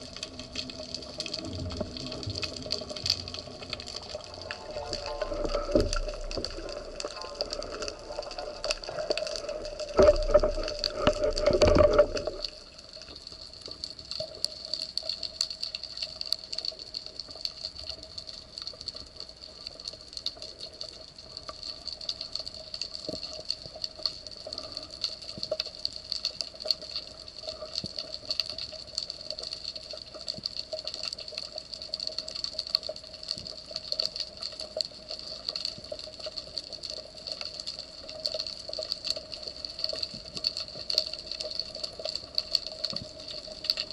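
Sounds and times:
constant hum: 0.0s - 14.7s
faint crackle of tiny clicks: 0.0s - 43.9s.

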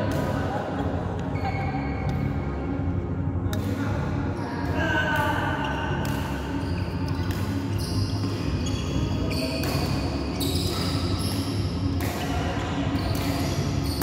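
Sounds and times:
rackets striking shuttlecock: 3.5s - 4.0s, 6.0s - 8.5s, 9.3s - 14.0s.

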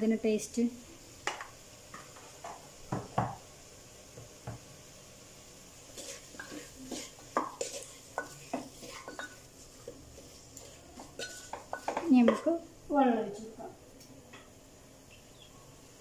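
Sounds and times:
wooden spatula scraping metal pot: 5.9s - 12.6s.

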